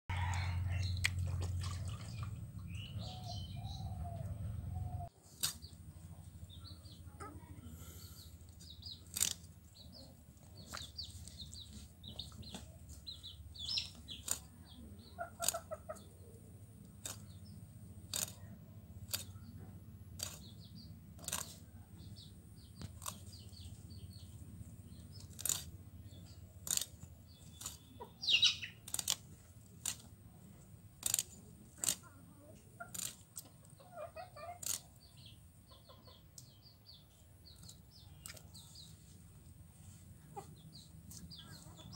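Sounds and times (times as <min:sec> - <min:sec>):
small birds chirping: 0:00.4 - 0:41.9
hens clucking: 0:13.7 - 0:16.5, 0:31.5 - 0:35.0, 0:40.1 - 0:41.9.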